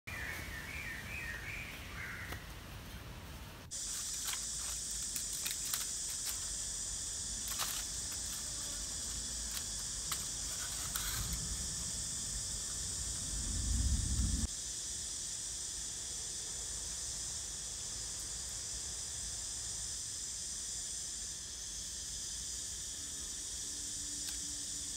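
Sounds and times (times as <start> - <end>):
bird chirps: 0.1 - 2.4
high insect drone: 0.1 - 24.9
low rumble: 11.2 - 14.5.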